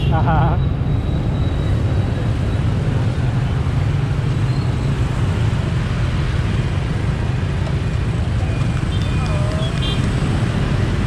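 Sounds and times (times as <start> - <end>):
road noise: 0.0 - 11.0.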